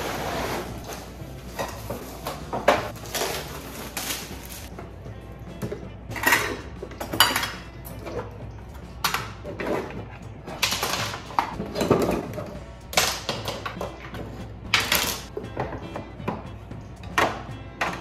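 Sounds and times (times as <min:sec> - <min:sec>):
metal utensils clattering in drawer: 0:10.6 - 0:12.5.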